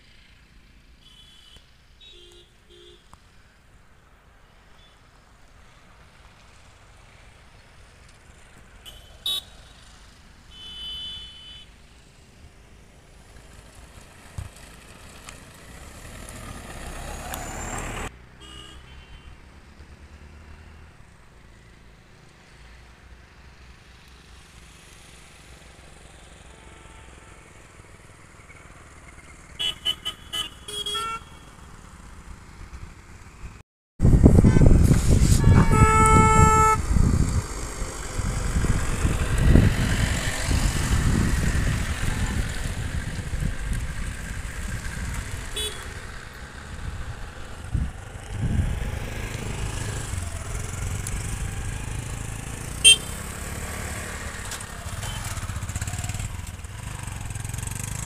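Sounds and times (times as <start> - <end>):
vehicle horn toots: 1.0 - 3.1, 8.8 - 9.6, 10.5 - 11.7, 18.4 - 19.4, 26.4 - 27.5, 29.6 - 31.6, 34.2 - 36.9, 45.6 - 46.0, 52.8 - 53.2, 55.0 - 55.4
deep vehicle horn: 34.2 - 36.9, 45.6 - 46.0, 52.8 - 53.3.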